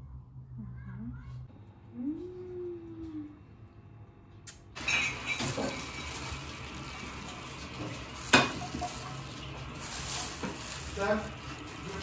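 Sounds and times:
plastic bags rustling: 4.8s - 12.0s.

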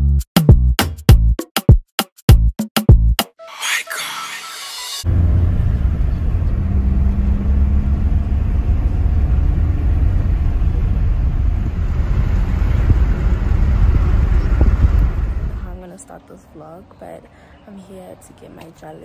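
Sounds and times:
music: 0.0s - 5.0s
car tyre and engine rumble: 5.0s - 15.8s.

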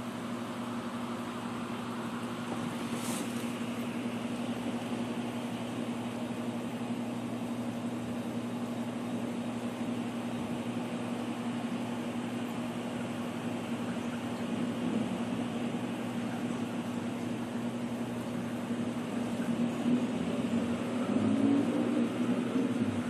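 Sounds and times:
machine humming: 0.0s - 23.0s
brief hiss: 2.8s - 3.6s.

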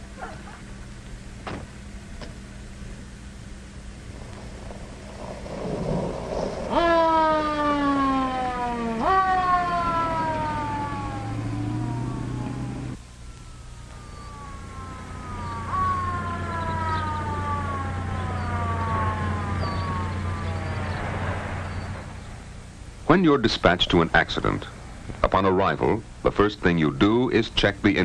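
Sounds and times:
steady low hum: 0.0s - 28.0s
police siren wailing: 6.4s - 22.2s.

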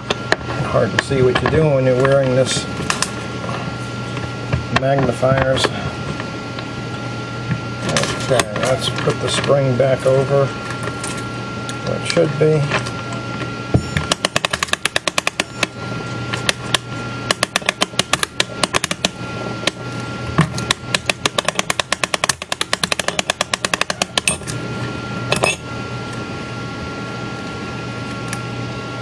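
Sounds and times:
ratchet clicking rapidly: 14.1s - 15.6s, 20.9s - 24.4s.

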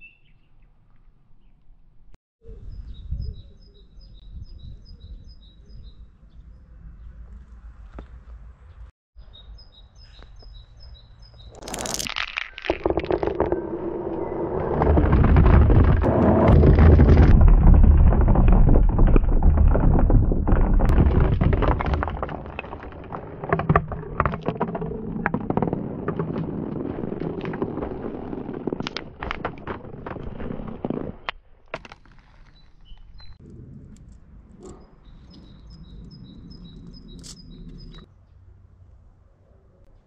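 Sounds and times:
bird chirping: 0.0s - 1.7s, 2.4s - 7.3s, 8.0s - 11.6s, 32.5s - 33.4s, 34.6s - 38.6s
marbles clattering down plastic tube: 11.6s - 14.0s.

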